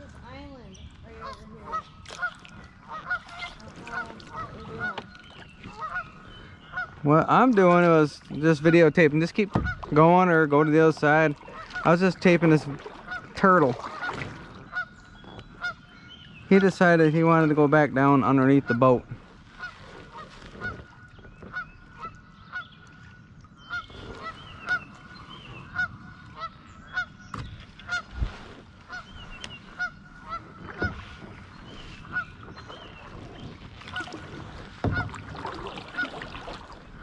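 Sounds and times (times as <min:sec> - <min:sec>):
geese honking: 0:01.1 - 0:07.0, 0:08.5 - 0:15.0, 0:15.6 - 0:15.9, 0:19.6 - 0:22.7, 0:23.7 - 0:27.2, 0:28.9 - 0:31.1.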